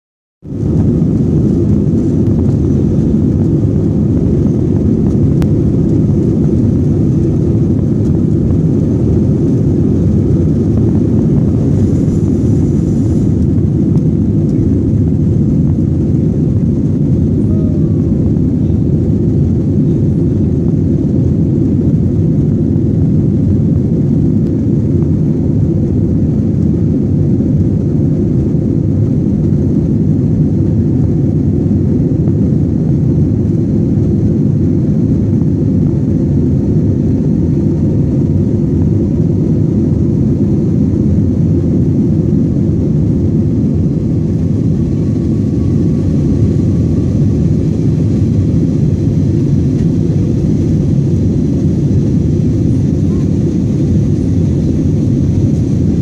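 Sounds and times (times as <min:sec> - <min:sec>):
jet engines roaring: 0:00.4 - 0:56.0.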